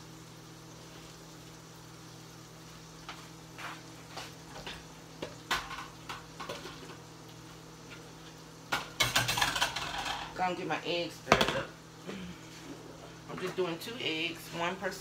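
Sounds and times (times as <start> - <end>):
low appliance hum: 0.0 - 15.0
kitchen things knocking and clattering: 4.5 - 7.0, 8.7 - 10.4, 11.3 - 11.7.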